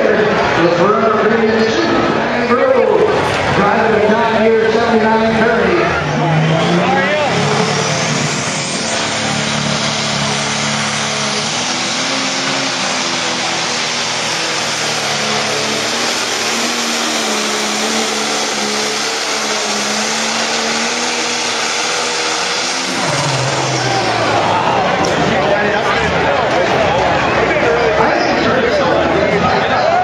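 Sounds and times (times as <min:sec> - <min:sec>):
diesel engine at full power: 0:00.0 - 0:30.0
rush of noise: 0:00.0 - 0:30.0.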